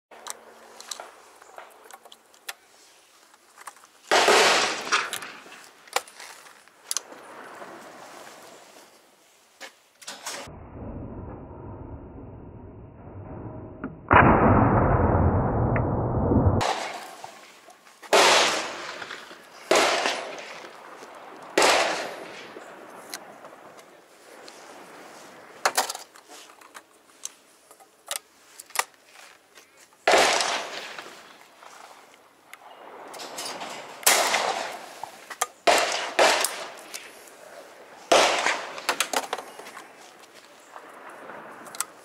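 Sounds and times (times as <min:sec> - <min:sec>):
shotgun blasts: 0:04.1 - 0:05.4, 0:16.6 - 0:17.4, 0:18.1 - 0:20.8, 0:21.6 - 0:22.6, 0:30.1 - 0:31.1, 0:34.0 - 0:35.0, 0:35.6 - 0:36.8, 0:38.1 - 0:39.0.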